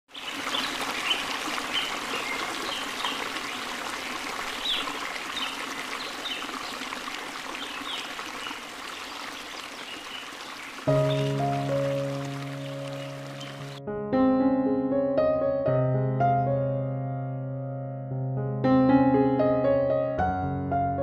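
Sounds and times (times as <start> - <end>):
water trickling from fountain: 0.1 - 13.8.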